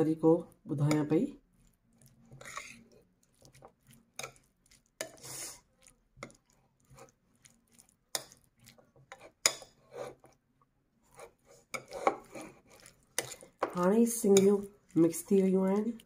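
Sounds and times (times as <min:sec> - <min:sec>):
plastic spoon scraping a bowl: 0:02.3 - 0:04.3, 0:08.7 - 0:10.4, 0:11.1 - 0:13.8.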